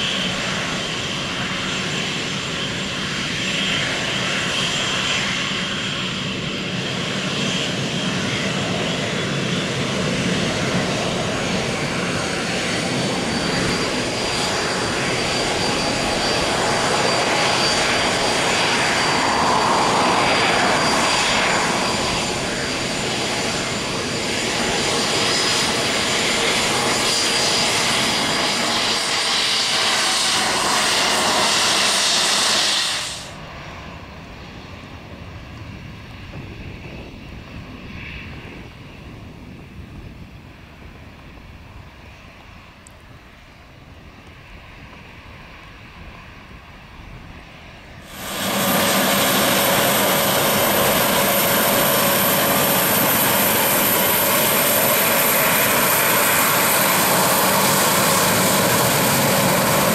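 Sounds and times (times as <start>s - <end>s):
jet engine noise: 0.0s - 59.9s
high engine whine rising in pitch: 48.0s - 59.9s.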